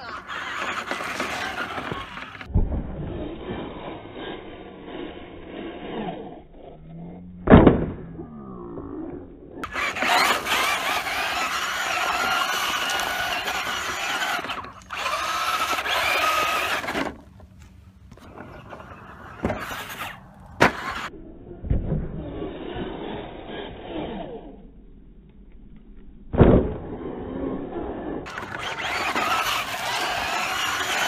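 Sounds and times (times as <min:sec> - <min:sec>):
electric motor whining: 0:00.0 - 0:02.5, 0:08.2 - 0:21.1, 0:27.8 - 0:31.0.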